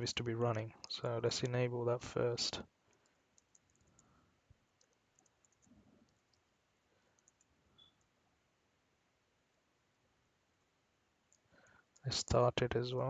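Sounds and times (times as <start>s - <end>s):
keyboard typing: 3.0s - 4.1s, 4.7s - 6.4s, 7.2s - 8.1s.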